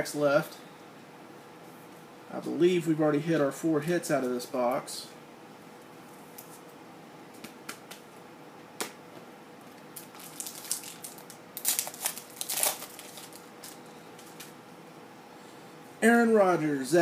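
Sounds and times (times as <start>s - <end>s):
cards clicking and rustling: 10.0s - 14.5s
foil wrapper rustling: 10.0s - 14.5s.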